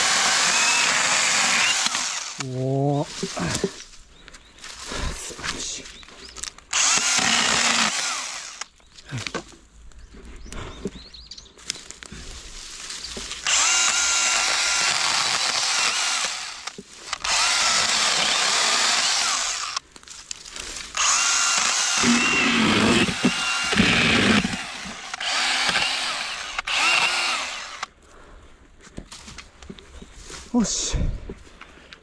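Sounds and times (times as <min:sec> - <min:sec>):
pruning chainsaw cutting branches: 0:00.0 - 0:02.6, 0:06.7 - 0:09.4, 0:13.2 - 0:27.9.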